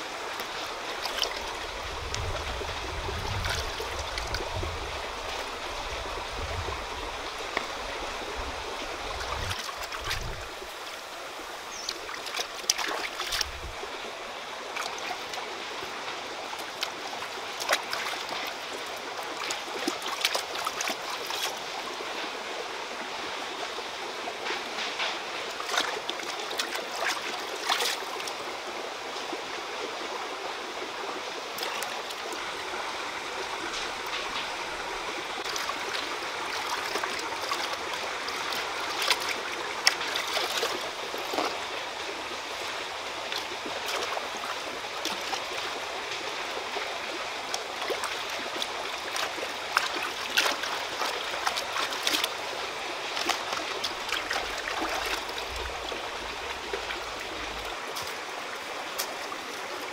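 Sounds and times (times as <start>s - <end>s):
rocky stream flowing: 0.0s - 59.9s
hands washing food in water: 19.4s - 21.6s, 35.4s - 41.7s, 47.6s - 52.5s, 53.1s - 58.3s.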